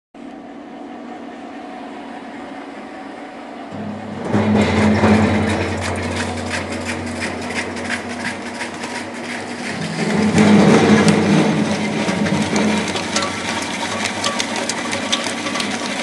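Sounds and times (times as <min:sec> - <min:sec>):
potatoes clattering through cutter: 0:03.8 - 0:16.0.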